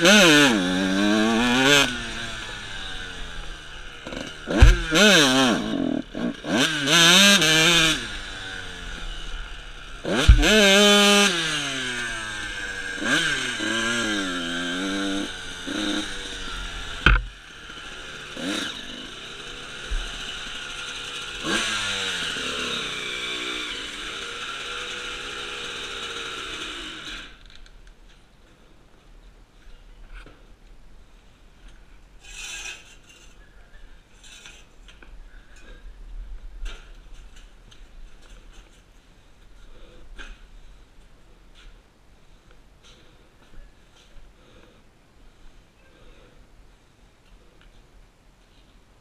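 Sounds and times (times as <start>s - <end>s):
dirt bike engine revving: 0.0s - 27.4s
sharp knocks: 4.5s - 5.0s, 17.0s - 17.3s.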